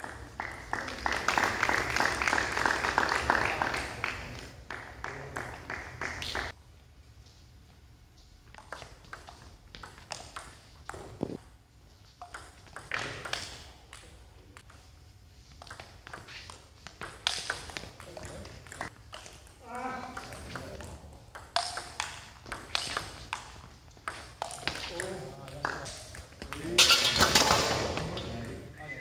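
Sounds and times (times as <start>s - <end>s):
people clapping: 0.0s - 6.6s
table tennis ball clicks: 21.4s - 25.1s.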